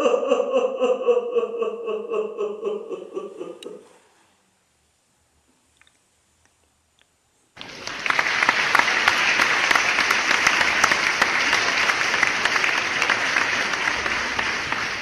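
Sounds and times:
audience applause: 0:07.6 - 0:15.0.

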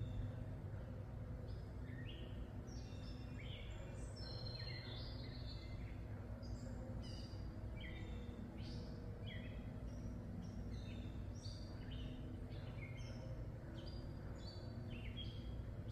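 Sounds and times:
birds chirping: 0:00.0 - 0:15.9
low background rumble: 0:00.0 - 0:15.9.

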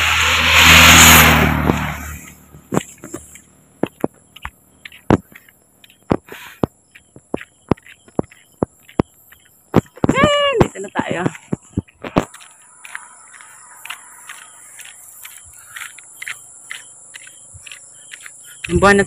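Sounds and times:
vehicle passing by: 0:00.0 - 0:03.4
footsteps on road: 0:01.4 - 0:19.0.

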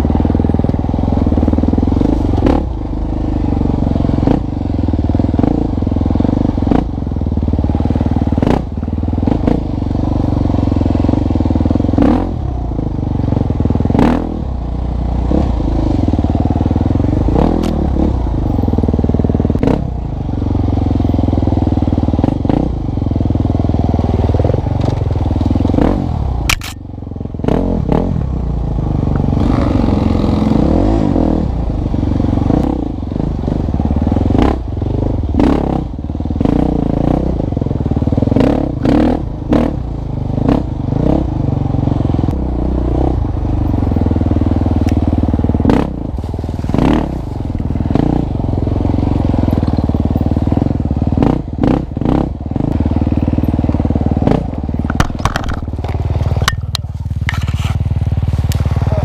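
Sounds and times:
motorcycle engine revving: 0:00.0 - 0:59.0
clatters and knocks: 0:54.8 - 0:57.7.

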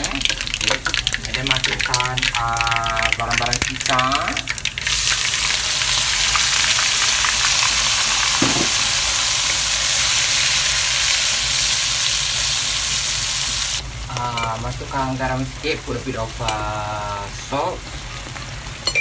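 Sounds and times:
paste sizzling in hot oil: 0:00.0 - 0:18.8.

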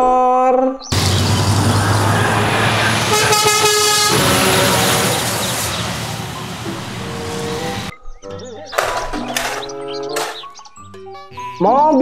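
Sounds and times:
truck driving past: 0:00.9 - 0:07.9
truck horn: 0:01.0 - 0:07.9.

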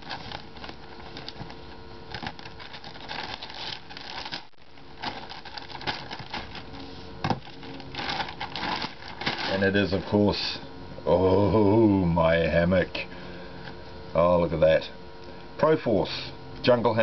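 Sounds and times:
plastic crinkling and rustling: 0:00.0 - 0:10.3.

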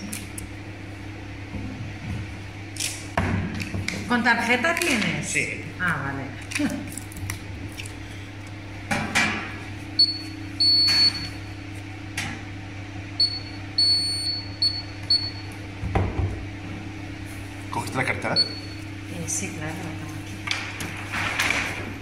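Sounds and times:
low electrical hum: 0:00.0 - 0:22.0
payment terminal beeps: 0:10.0 - 0:11.6, 0:13.2 - 0:15.6, 0:18.2 - 0:18.9.

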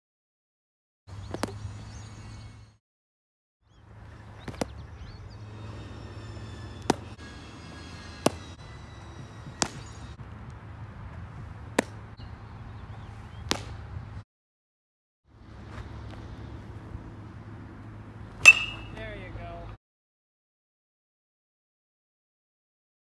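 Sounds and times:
baseballs striking catcher's gear: 0:01.3 - 0:01.6, 0:04.4 - 0:04.8, 0:06.8 - 0:08.6, 0:09.4 - 0:10.1, 0:11.7 - 0:12.0, 0:13.4 - 0:13.8, 0:18.4 - 0:19.0.

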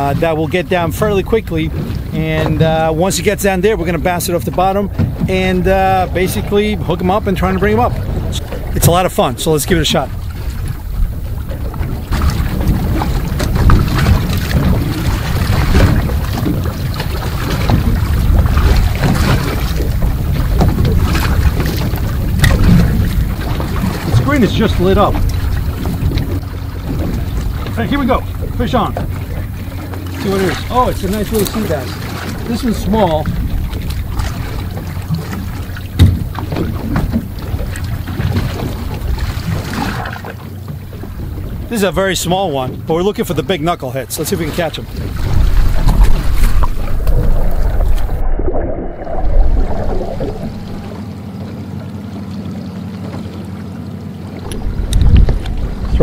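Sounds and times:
low steady rumble: 0:00.0 - 0:43.3, 0:44.7 - 0:52.8, 0:53.5 - 0:56.0
wind buffeting microphone: 0:00.0 - 0:43.6, 0:44.6 - 0:51.2, 0:54.4 - 0:56.0
water slapping against boat hull: 0:00.0 - 0:56.0.

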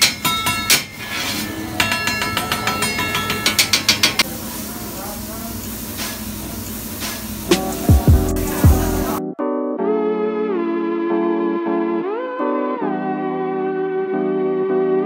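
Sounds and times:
metal spatula clanging on griddle: 0:00.0 - 0:04.3
murmur of diners talking: 0:01.4 - 0:06.7.

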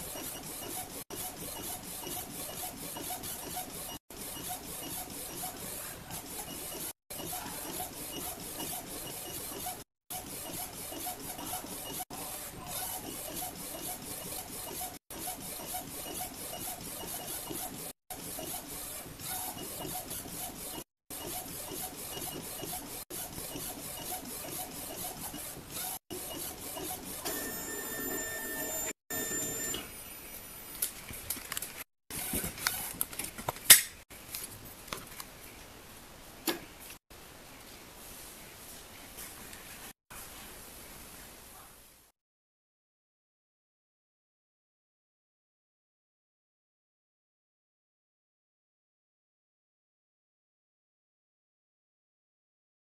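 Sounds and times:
printer carriage whirring: 0:00.0 - 0:29.9.

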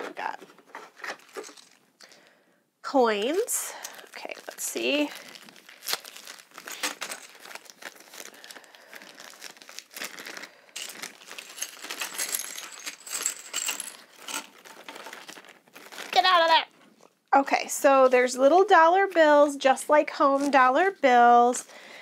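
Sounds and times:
plastic bag crinkling: 0:03.2 - 0:17.1
toy coins clinking: 0:10.8 - 0:14.5.

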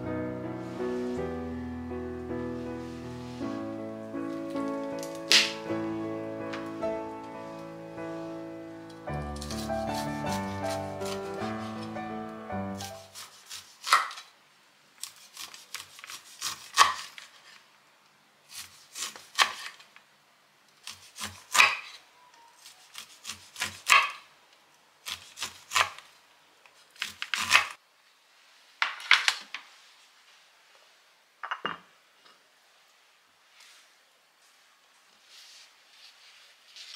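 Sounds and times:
knife slicing corn kernels: 0:05.3 - 0:05.6, 0:09.3 - 0:12.0, 0:12.8 - 0:14.3, 0:15.0 - 0:17.6, 0:18.5 - 0:19.8, 0:20.8 - 0:22.0, 0:22.6 - 0:24.2, 0:25.0 - 0:26.1, 0:26.8 - 0:27.8.

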